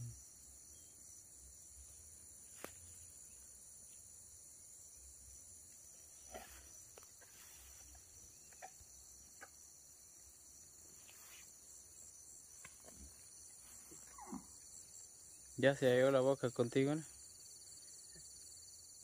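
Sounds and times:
insects shrilling: 5.3s - 15.8s.

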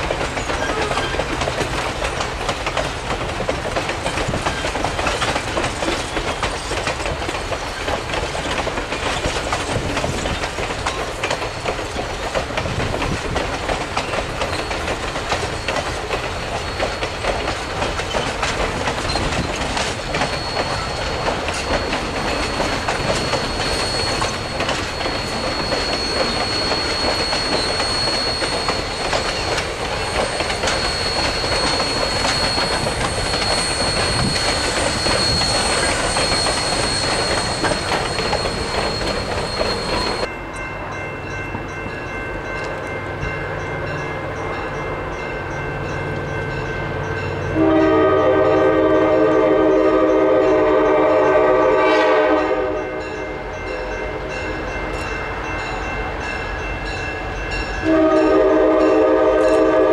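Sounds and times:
train wheels clattering: 0.0s - 40.3s
high-pitched wheel squeal: 20.1s - 40.3s.

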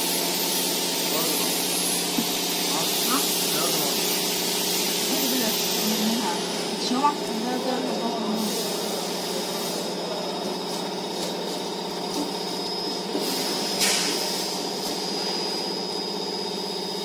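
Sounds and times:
machine hum: 0.0s - 17.0s.

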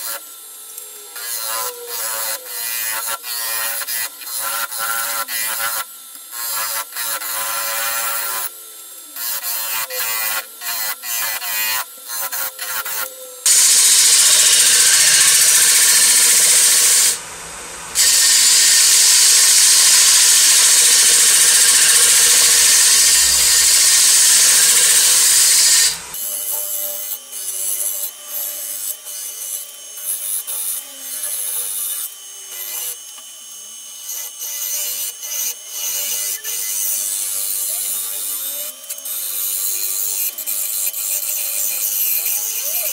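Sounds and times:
lathe tool cutting wood: 1.3s - 29.9s.

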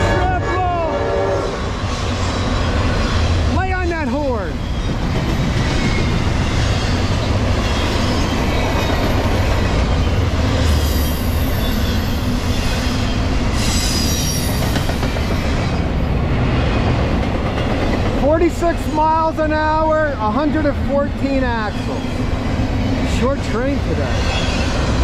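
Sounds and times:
train wheels rumbling on rail: 0.0s - 25.0s
high wheel squeals: 10.0s - 14.9s.

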